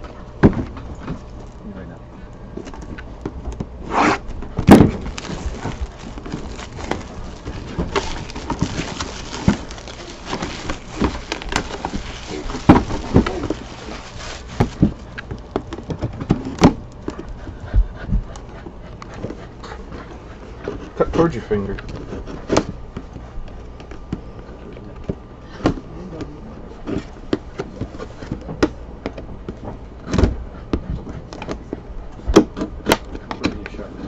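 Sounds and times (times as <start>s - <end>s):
shrink wrap crinkling: 4.6s - 15.9s.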